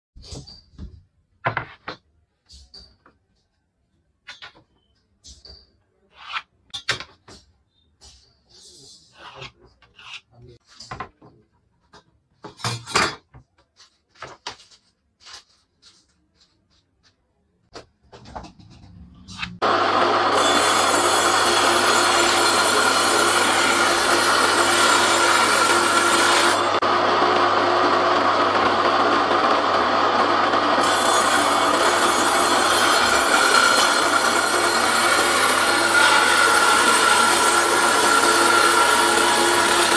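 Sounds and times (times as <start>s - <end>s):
table saw cutting wood: 19.3s - 39.9s.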